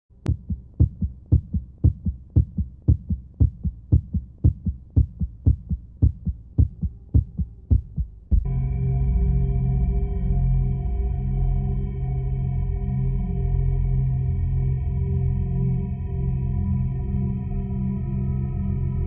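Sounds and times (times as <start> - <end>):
heartbeat thumps: 0.2 - 8.5
ambient chord: 8.4 - 19.0.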